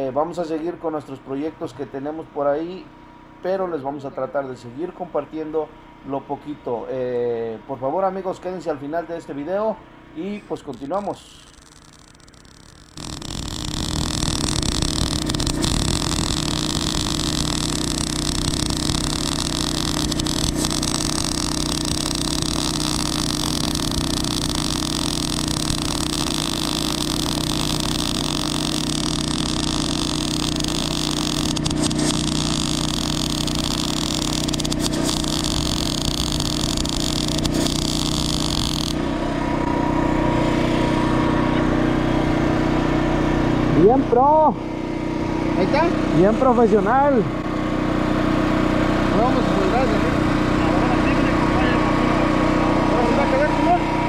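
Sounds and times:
welding arc hissing: 10.5 - 39.7
small engine running: 10.5 - 54.0.

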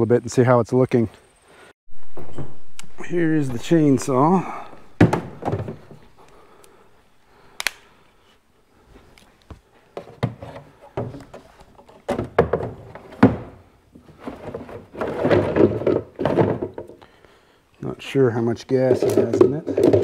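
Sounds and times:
equipment knocks and rattles: 5.0 - 6.1, 14.2 - 16.9.

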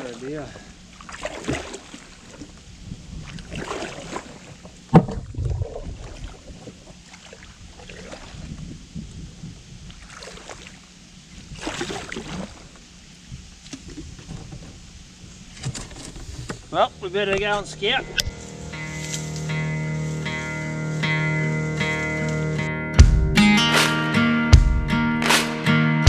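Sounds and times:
paddle and hull scraping: 0.0 - 22.6
low thud: 4.9 - 6.0.

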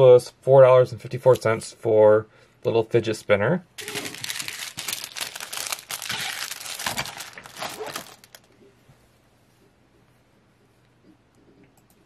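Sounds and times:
plastic bags crinkling: 3.8 - 8.6.

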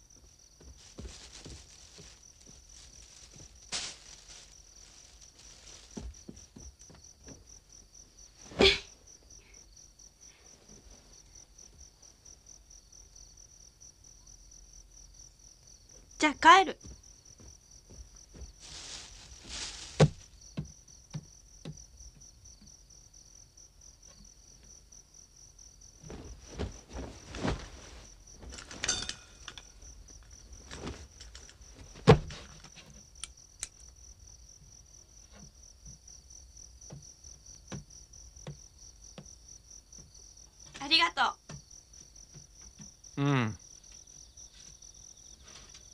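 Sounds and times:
crickets chirping: 0.0 - 45.9
rustles and knocks: 0.1 - 8.6, 16.8 - 22.3, 26.0 - 33.3, 35.2 - 36.1.

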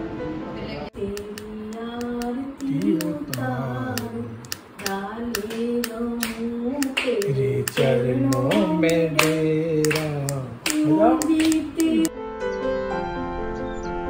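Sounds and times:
woman singing unaccompanied: 1.0 - 12.1
hand claps: 1.1 - 12.1.

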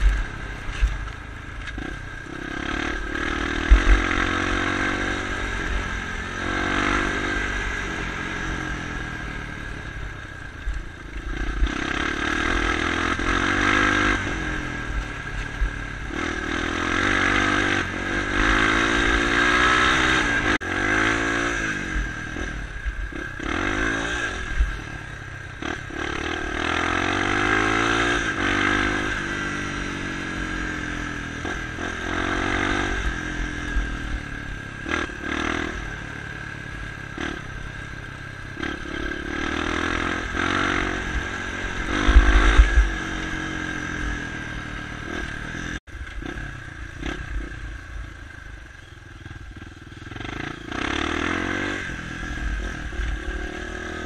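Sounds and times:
bike rattling and scraping: 0.0 - 21.8, 23.1 - 47.6
motorcycle engine revving: 0.0 - 54.0.

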